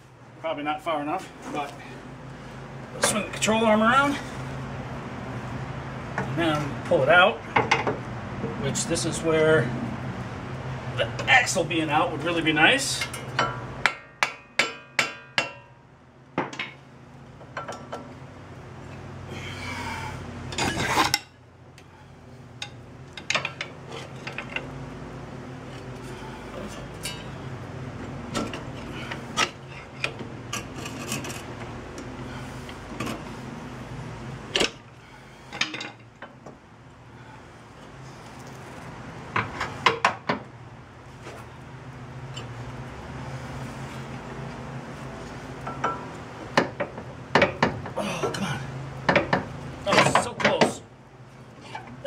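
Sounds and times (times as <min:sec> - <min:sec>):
metal knocks and clanks: 0:49.0 - 0:50.8.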